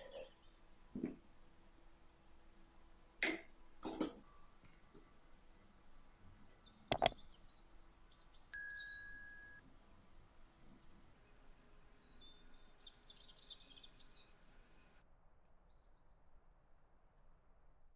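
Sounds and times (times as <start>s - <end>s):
metal spoon clicking on plate: 6.9s - 7.2s
faint high chirps: 8.5s - 9.6s.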